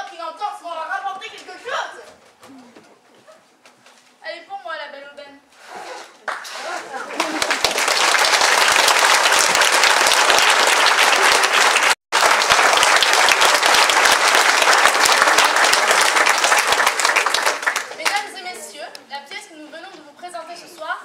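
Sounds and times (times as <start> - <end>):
audience applauding: 6.2 - 18.5.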